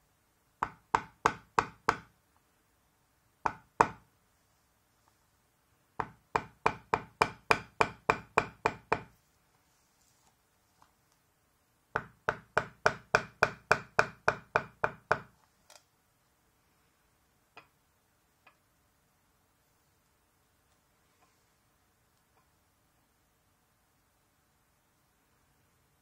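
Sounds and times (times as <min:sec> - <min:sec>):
maul tapping leather tool: 0:00.6 - 0:02.1, 0:03.4 - 0:04.0, 0:06.0 - 0:09.2, 0:11.9 - 0:15.4.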